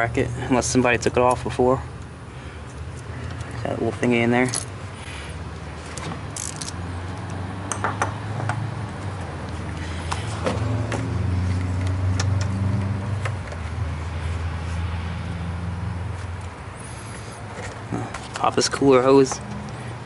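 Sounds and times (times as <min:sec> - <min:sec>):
tools clinking: 0:05.9 - 0:08.1.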